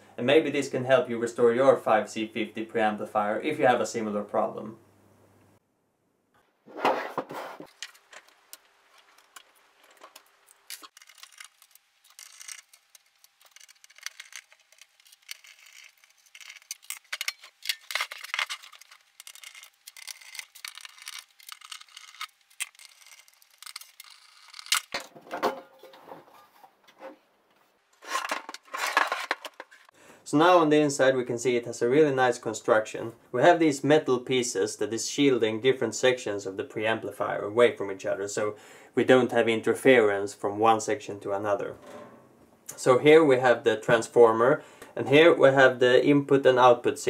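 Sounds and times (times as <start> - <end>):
hands clicking and scraping metal: 7.6 - 25.0.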